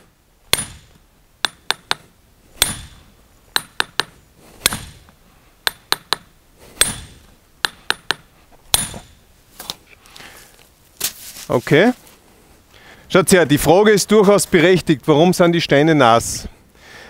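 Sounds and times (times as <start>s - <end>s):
hammer striking steel on stone: 0.5s - 9.2s
stone splitting: 3.6s - 5.1s.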